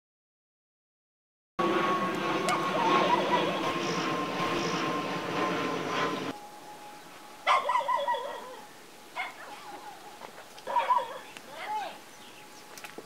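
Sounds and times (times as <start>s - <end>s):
animal wavering cry: 7.4s - 12.0s.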